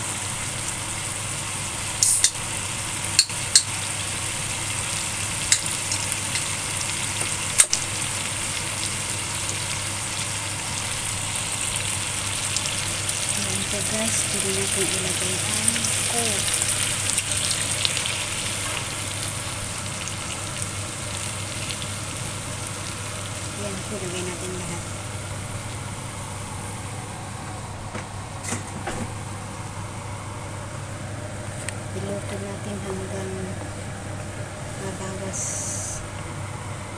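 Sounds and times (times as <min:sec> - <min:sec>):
chicken wings sizzling in a wok: 0:00.0 - 0:26.9
steady low hum: 0:00.0 - 0:36.9.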